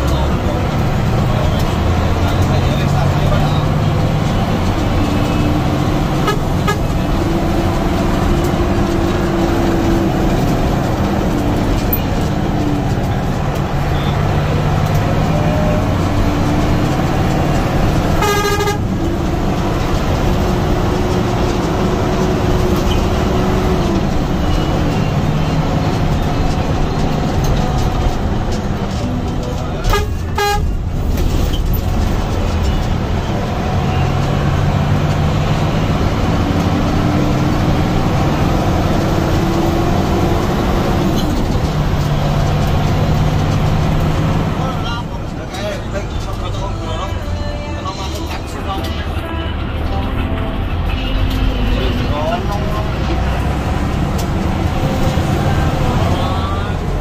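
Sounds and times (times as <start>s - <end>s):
bus diesel engine running: 0.0s - 57.0s
horn sounding: 5.2s - 7.3s, 18.0s - 19.0s, 29.8s - 30.9s
short horn toots: 18.2s - 18.9s.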